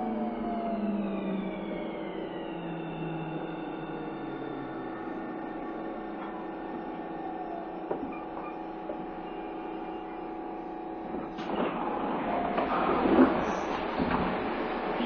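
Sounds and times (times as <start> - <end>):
train hum in tunnel: 0.0 - 15.0
train rumble: 0.0 - 15.0.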